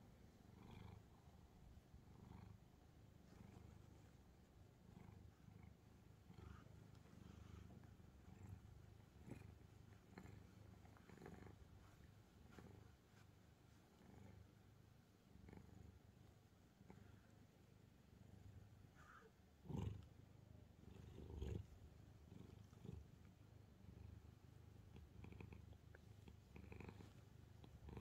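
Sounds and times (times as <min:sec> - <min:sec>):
cat purring: 0:00.0 - 0:28.0
faint rustles: 0:00.2 - 0:17.9.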